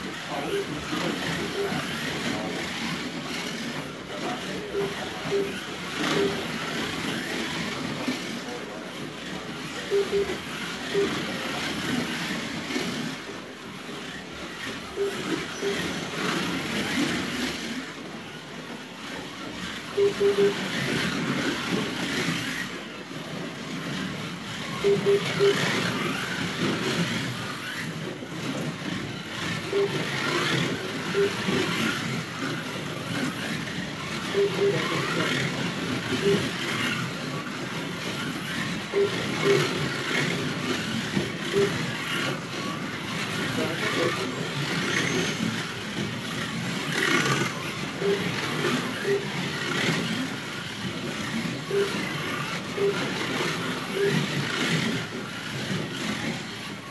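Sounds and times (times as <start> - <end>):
buzz of wheels on track: 0.0 - 56.9
slot car electric motors whining: 0.0 - 56.9
short beeps: 4.2 - 6.6, 9.8 - 11.6, 14.9 - 16.2, 19.9 - 20.7, 24.7 - 26.1, 29.7 - 31.6, 34.3 - 35.5, 36.1 - 36.6, 38.9 - 39.8, 41.5 - 41.9, 47.3 - 49.4, 51.7 - 54.3.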